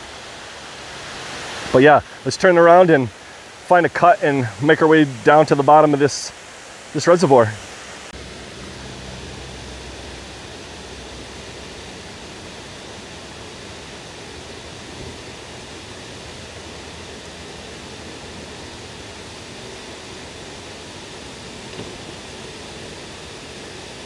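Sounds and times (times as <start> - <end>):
water rushing down stone spillway: 0.0 - 8.1.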